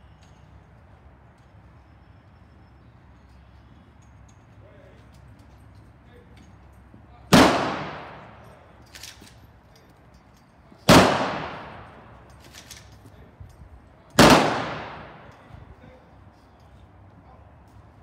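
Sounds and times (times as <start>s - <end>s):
rifle volley cracks: 7.3s - 9.1s, 10.9s - 12.9s, 14.1s - 15.5s.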